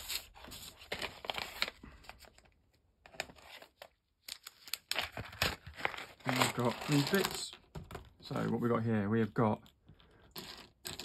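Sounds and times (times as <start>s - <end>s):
plastic bag crinkling: 3.3s - 7.5s.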